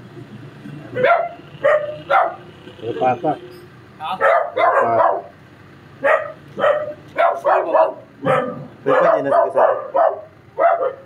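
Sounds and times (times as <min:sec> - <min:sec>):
dog barking and yelping: 0:00.9 - 0:02.5, 0:04.1 - 0:05.4, 0:06.0 - 0:11.0.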